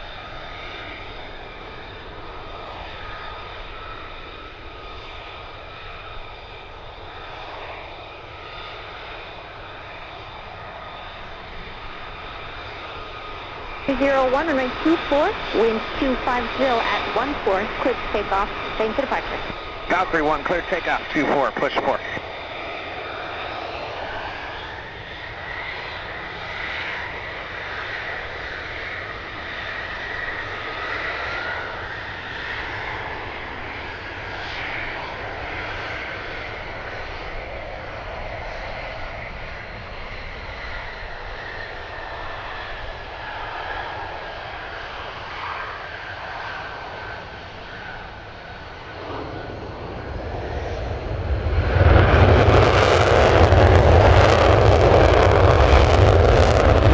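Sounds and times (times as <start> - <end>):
jet engine whine: 0.0 - 56.9.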